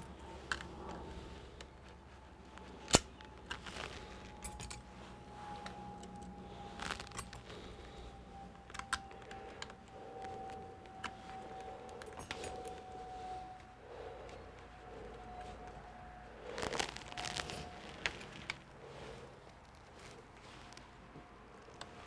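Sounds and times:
faint thin whine: 0.0 - 22.0
clicks and clinks of tools: 2.8 - 7.5, 10.9 - 12.9.

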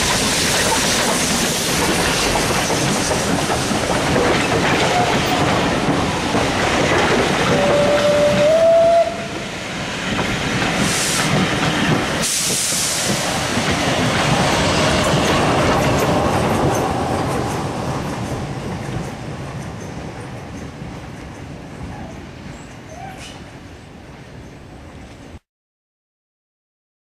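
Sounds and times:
steam locomotive hissing: 0.0 - 20.0
train wheels clickety-clack: 0.0 - 24.4
train whistle: 7.5 - 9.4.

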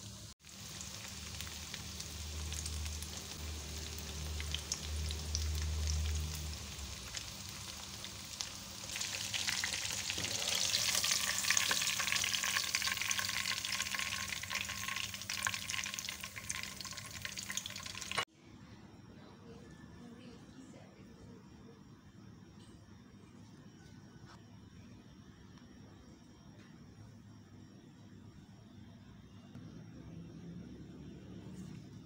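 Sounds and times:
food deep-frying in hot oil: 0.0 - 18.3.

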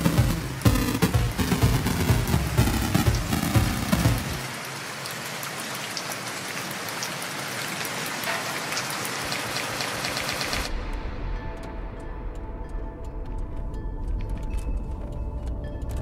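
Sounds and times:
music with bass line: 0.0 - 4.5.

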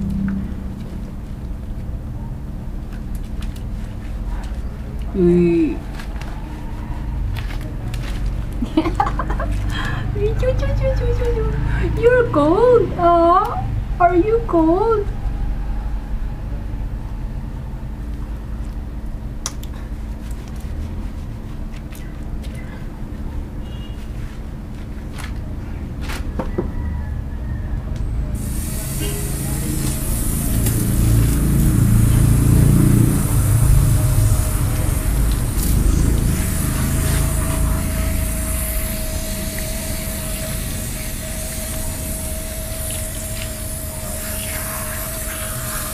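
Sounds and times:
low rumble and hum: 0.0 - 45.9
hands lathering wet fur: 20.0 - 22.4
hose water splashing: 28.4 - 45.9.

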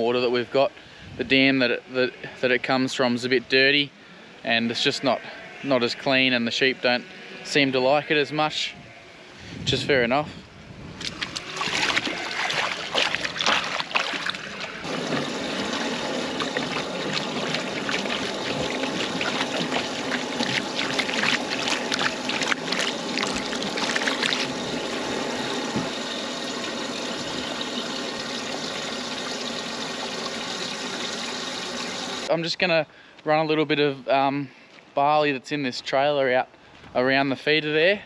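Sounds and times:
water splashing in a trough: 11.0 - 32.0
water trickling: 11.0 - 32.3.

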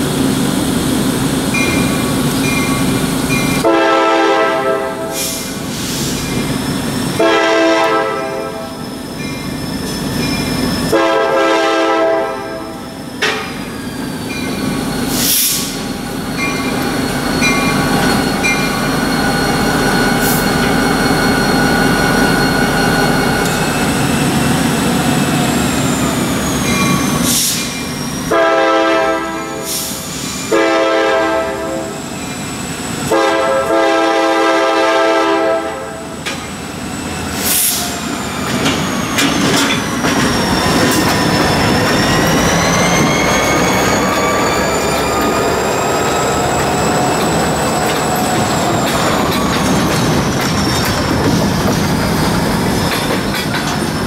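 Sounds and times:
locomotive air horn blasts: 3.6 - 5.5, 7.2 - 8.8, 10.9 - 12.9, 28.3 - 29.9, 30.5 - 32.0, 33.1 - 36.1
faint wheel squeal on rails: 5.0 - 7.1, 8.0 - 11.0, 12.5 - 31.0, 36.1 - 54.0
locomotive engine running: 36.2 - 54.0.

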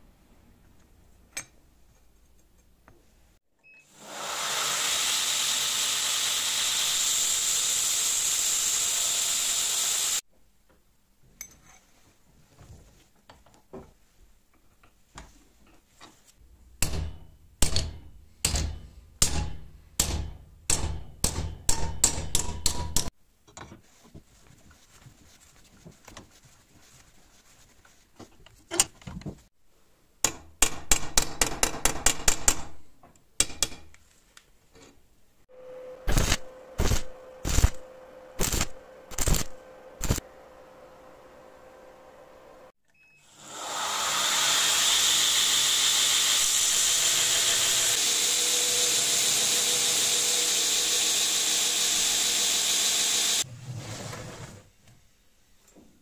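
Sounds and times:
loud steady hiss: 3.9 - 10.2.

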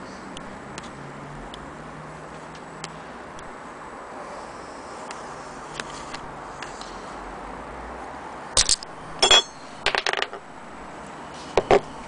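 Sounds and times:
ringing metallic clink: 9.2 - 9.7.

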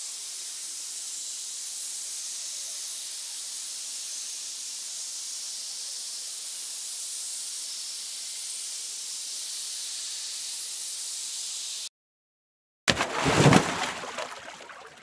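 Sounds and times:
high-pitched hiss: 0.0 - 11.9.

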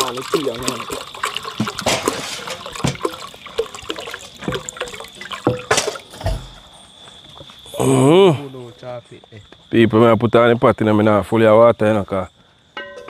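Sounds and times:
water pouring into a pot: 0.0 - 7.8.

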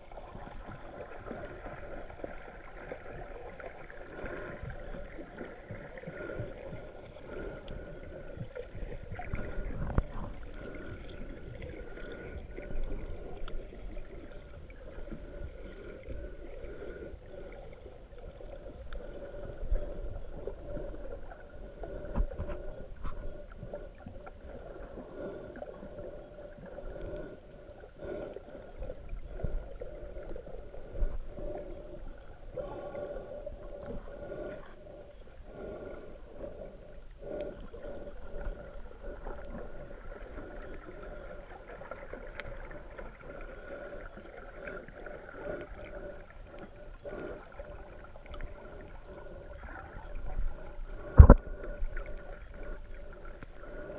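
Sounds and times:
underwater seawater churning: 0.0 - 53.9
sharp underwater knocks: 51.2 - 51.4.

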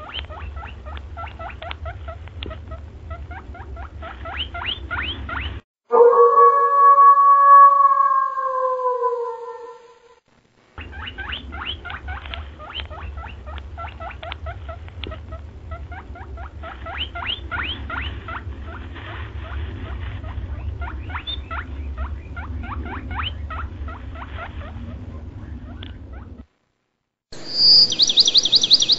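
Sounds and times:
rapid squeaky chirps: 0.0 - 5.6, 10.8 - 18.8
steady low hum: 0.0 - 28.9.

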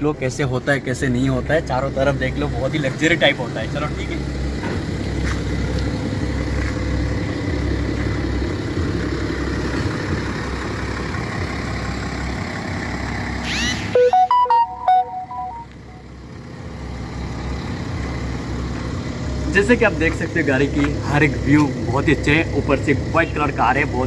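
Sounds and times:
car engine idling: 0.0 - 24.0
electronic beeps: 13.5 - 16.0.

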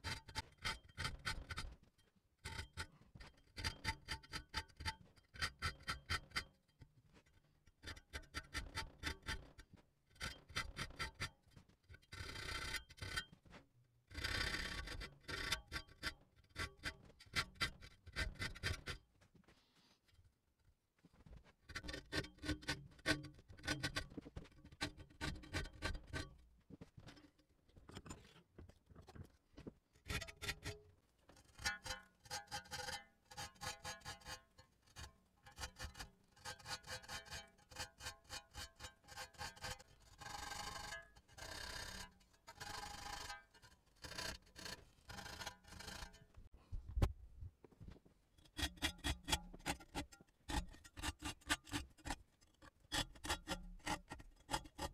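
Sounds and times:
file rasping on saw teeth: 2.4 - 6.5, 12.1 - 13.3, 14.1 - 19.0, 31.6 - 46.2, 48.4 - 54.9.

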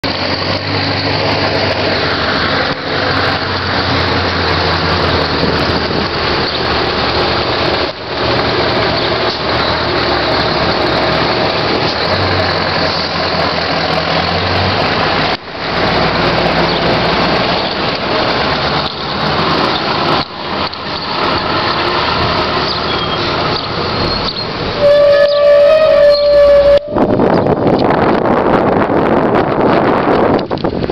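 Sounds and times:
diesel truck pulling away: 0.0 - 30.9.

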